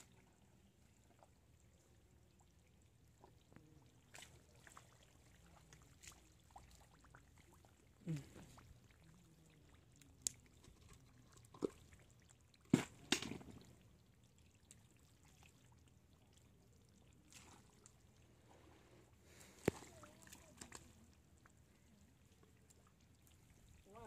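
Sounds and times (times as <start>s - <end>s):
mud and water squelching: 4.0s - 7.2s, 9.6s - 13.8s, 16.9s - 18.0s, 19.3s - 21.1s.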